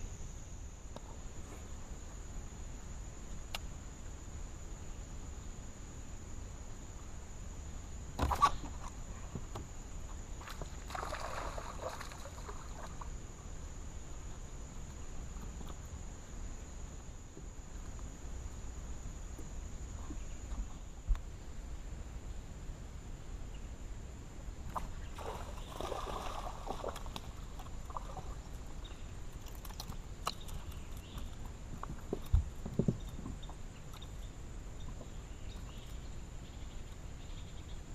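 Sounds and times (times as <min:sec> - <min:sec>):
fish splashing: 0:10.8 - 0:12.9, 0:25.2 - 0:28.5.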